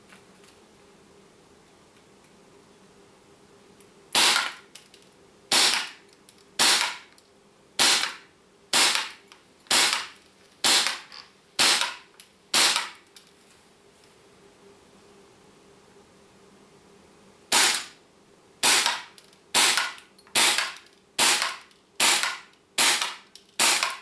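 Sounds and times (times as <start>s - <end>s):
airsoft pistol shots: 4.2s - 4.6s, 5.5s - 6.0s, 6.6s - 7.1s, 7.8s - 12.0s, 12.6s - 13.0s, 17.5s - 18.0s, 18.6s - 24.0s.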